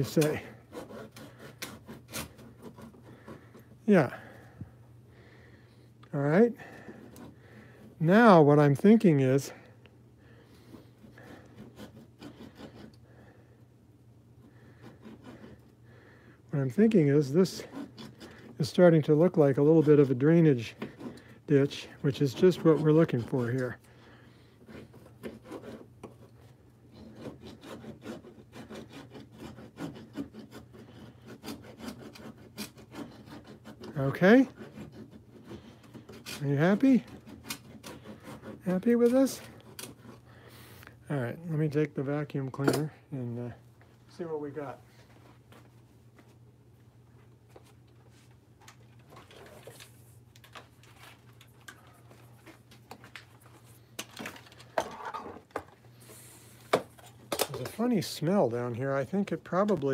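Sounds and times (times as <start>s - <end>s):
hand saw scraping strokes: 0.0s - 4.6s, 6.4s - 9.6s, 10.5s - 13.3s, 14.4s - 15.8s, 16.6s - 23.9s, 24.5s - 42.9s.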